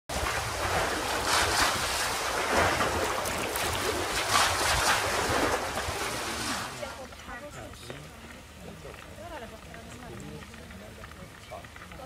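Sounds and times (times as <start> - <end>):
wind buffeting microphone: 0.1 - 6.8
water rushing past boat: 0.1 - 12.0.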